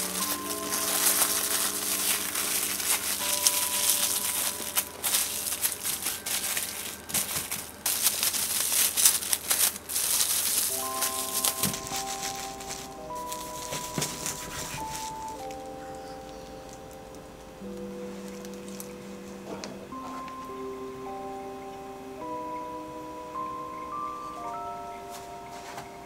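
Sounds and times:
wrapping material crinkling: 0.0s - 19.4s
soft background music: 0.0s - 26.0s.

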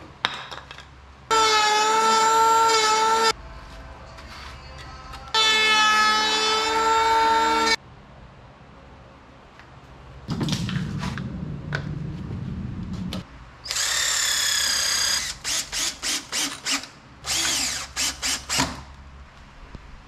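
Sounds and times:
low drone: 10.3s - 13.3s
cordless drill driving screws: 13.7s - 18.7s.

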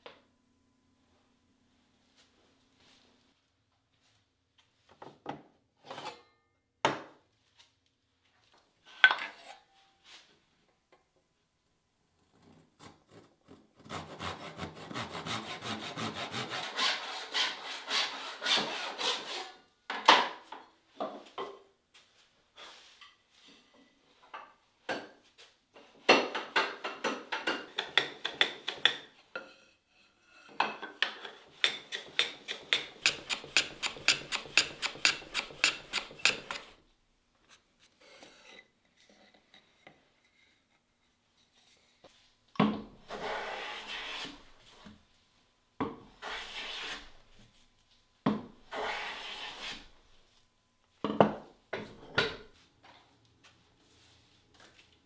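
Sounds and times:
hand plane shaving wood: 13.8s - 19.5s, 31.5s - 36.8s, 43.1s - 44.4s, 46.2s - 47.2s, 48.7s - 49.9s.

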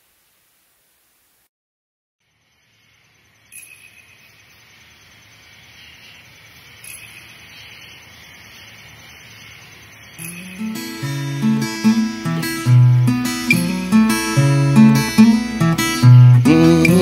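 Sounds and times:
acoustic guitar music: 10.2s - 17.0s
river water hissing: 10.2s - 17.0s.

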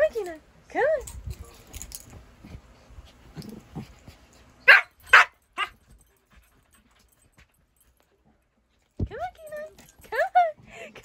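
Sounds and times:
puppy barking: 4.6s - 5.8s.

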